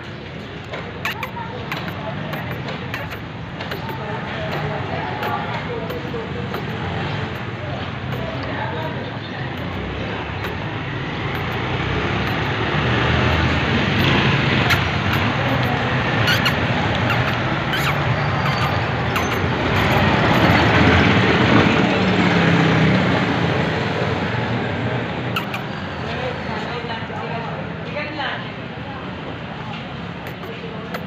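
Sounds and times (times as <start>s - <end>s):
road traffic rumble: 0.0s - 31.0s
faint clicks: 0.6s - 7.5s, 9.5s - 12.6s, 13.2s - 20.8s, 29.7s - 31.0s.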